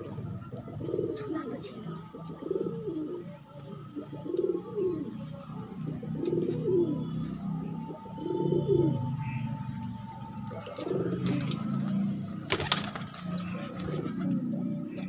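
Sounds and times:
murmur of pigeon flock cooing: 0.0 - 15.0
pigeon cooing: 0.0 - 15.0.

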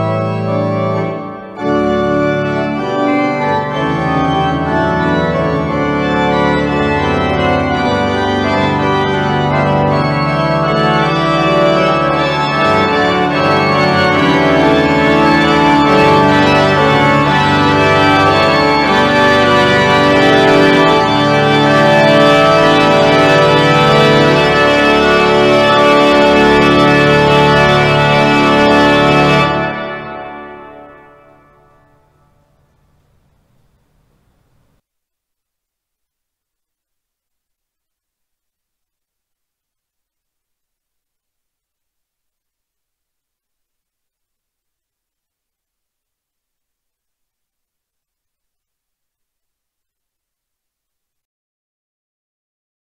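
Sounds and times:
pipe organ playing chords: 0.0 - 33.3.

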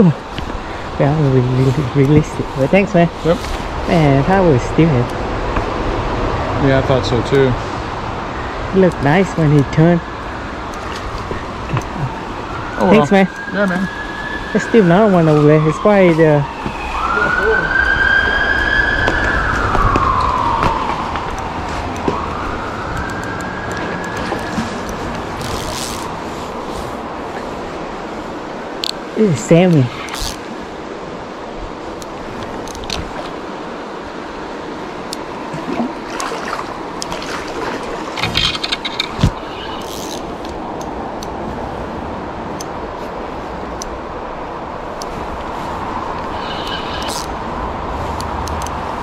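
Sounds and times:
river water rushing: 0.0 - 15.5, 23.7 - 49.0
emergency vehicle siren wailing: 12.3 - 24.8.

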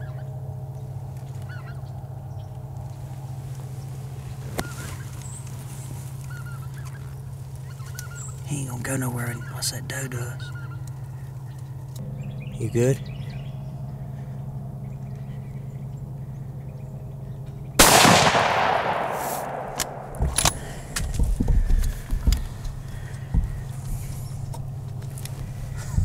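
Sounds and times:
rifle shot: 17.8 - 21.0
rifle handling clicks and rustles: 18.4 - 21.2.

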